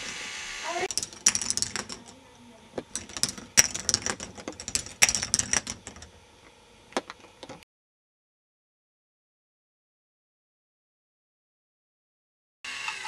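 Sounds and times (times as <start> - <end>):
balls clattering on plastic tracks: 0.7 - 6.2.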